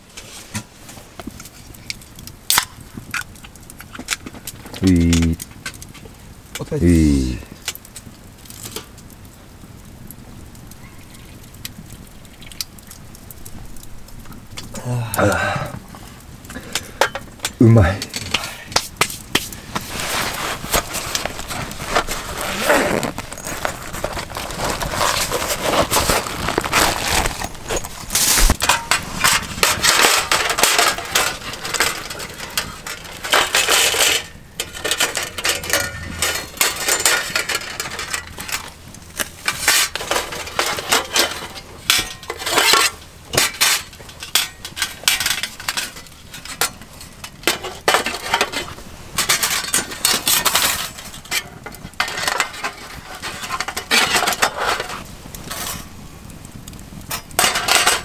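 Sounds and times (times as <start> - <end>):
metal panels clinking: 19.9 - 55.9, 57.1 - 58.0.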